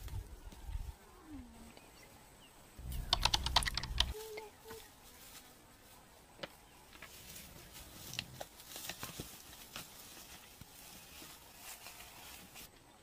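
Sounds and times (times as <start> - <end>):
hyena feeding clicks: 2.8 - 4.6
rustling in grass: 2.8 - 12.8.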